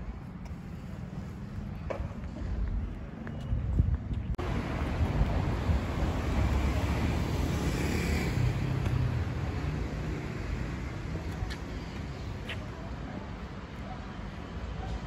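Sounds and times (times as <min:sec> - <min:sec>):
car passing on road: 0:04.4 - 0:11.2.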